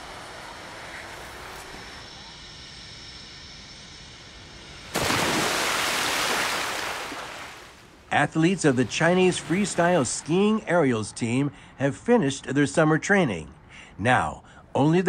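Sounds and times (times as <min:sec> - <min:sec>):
outdoor rushing noise: 0:00.0 - 0:12.7
loud rush of water: 0:05.0 - 0:08.0.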